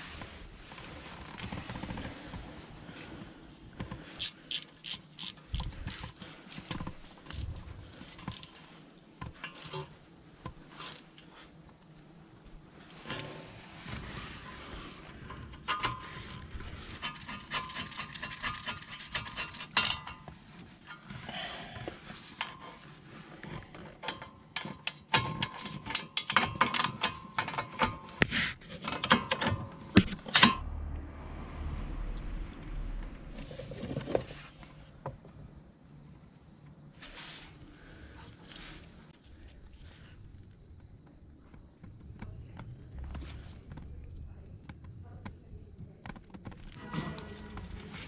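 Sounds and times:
ratchet wrench clicking: 4.1s - 6.2s, 7.3s - 7.6s, 8.2s - 8.7s, 9.5s - 9.8s, 10.7s - 11.2s, 16.9s - 20.1s.

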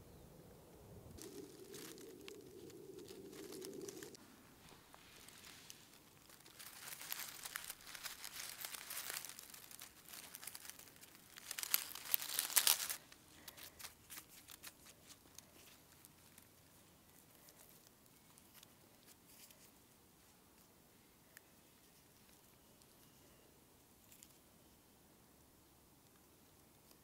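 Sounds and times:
footsteps crunching through dry leaves: 1.2s - 16.0s.

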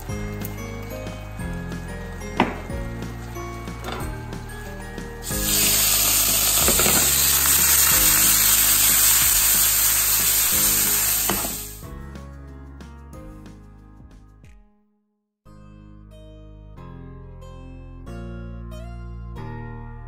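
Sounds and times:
background music: 0.0s - 14.8s, 15.5s - 20.0s
shrimp sizzling in oil: 0.1s - 11.8s.

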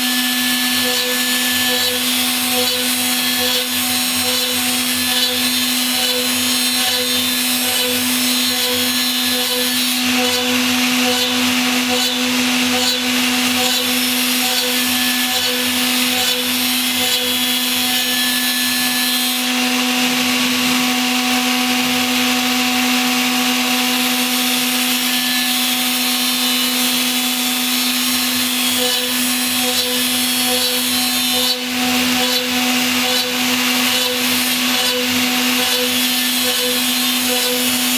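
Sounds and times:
router spindle motor running: 0.0s - 18.4s, 26.4s - 37.9s
end mill cutting metal: 0.0s - 37.9s.

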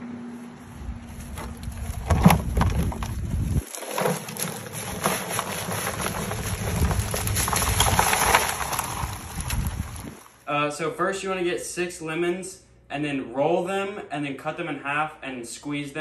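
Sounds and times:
crawfish shells clattering: 1.3s - 10.4s.

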